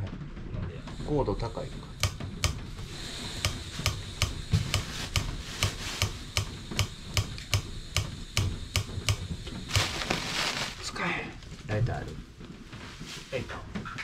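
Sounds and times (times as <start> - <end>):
stove igniter clicking: 0.9 - 9.9.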